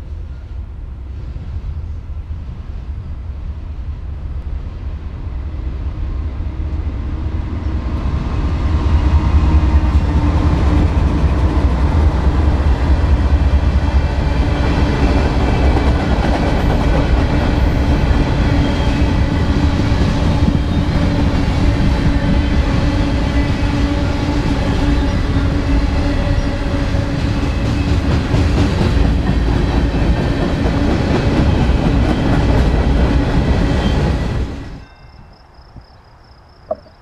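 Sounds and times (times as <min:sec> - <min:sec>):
train cars clattering on rails: 0:26.9 - 0:34.8.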